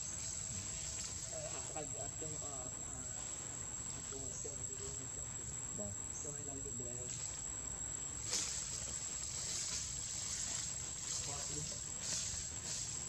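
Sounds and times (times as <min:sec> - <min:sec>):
faint voices: 0:00.0 - 0:07.3
high thin insect drone: 0:00.0 - 0:13.0.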